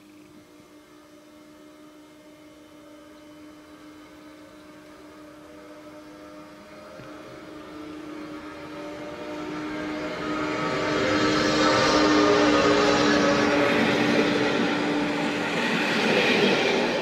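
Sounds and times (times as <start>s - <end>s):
electric locomotive hum: 0.0s - 17.0s
train rail noise: 6.3s - 17.0s.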